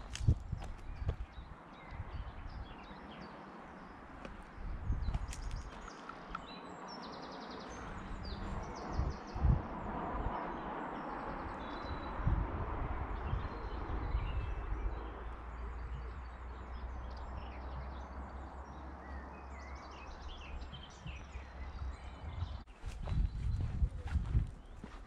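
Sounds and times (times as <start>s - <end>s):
wind on microphone: 0.0s - 3.0s, 4.2s - 6.4s, 7.6s - 18.1s, 20.1s - 25.0s
small birds chirping: 0.0s - 12.4s, 13.0s - 25.0s
footsteps: 22.8s - 25.0s.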